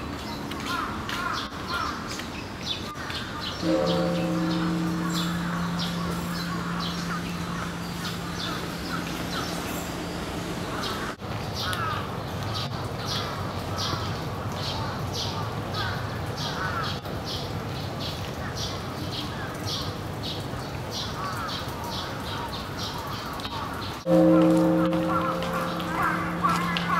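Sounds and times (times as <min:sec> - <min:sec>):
other birds: 0:00.3 - 0:14.1, 0:22.9 - 0:26.9
crows cawing: 0:00.6 - 0:02.1, 0:03.0 - 0:09.9, 0:23.6 - 0:26.9.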